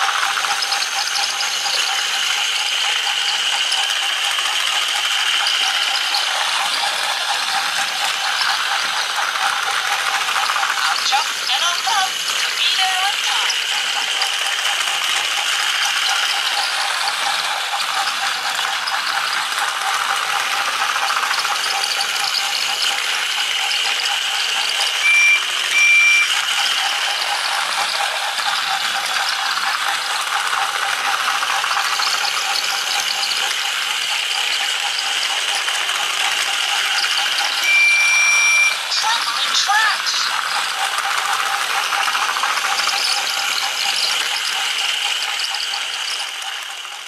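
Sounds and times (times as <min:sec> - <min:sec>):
toy train motor whirring rattle: 0:00.0 - 0:47.0
short high beeps: 0:25.0 - 0:26.4, 0:37.6 - 0:39.0.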